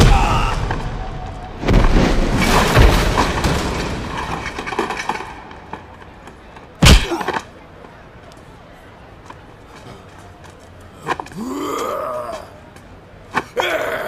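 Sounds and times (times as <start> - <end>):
metal clattering and scraping: 1.6 - 6.2
motorcycles crashing on stone: 1.6 - 6.2.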